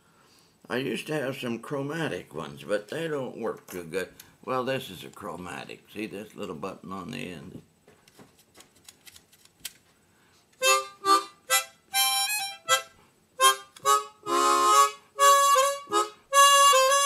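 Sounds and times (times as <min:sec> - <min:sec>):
harmonica playing: 0:10.6 - 0:17.0.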